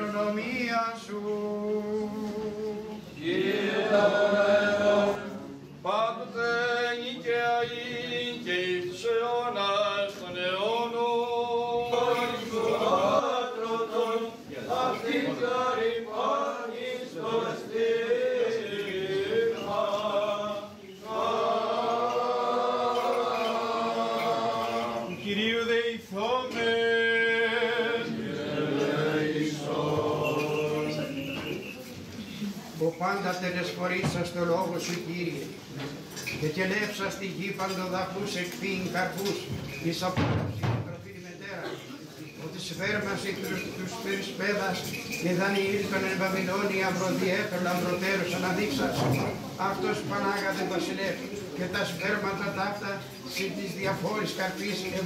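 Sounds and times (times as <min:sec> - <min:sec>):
voices chanting a hymn: 0:00.0 - 0:31.9.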